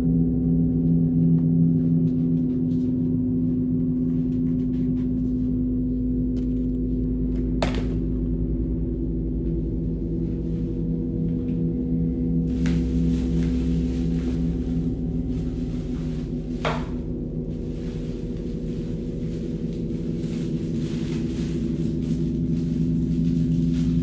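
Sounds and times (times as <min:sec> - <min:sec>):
droning horror score: 0:00.0 - 0:24.0
plastic bag rustling: 0:12.5 - 0:24.0.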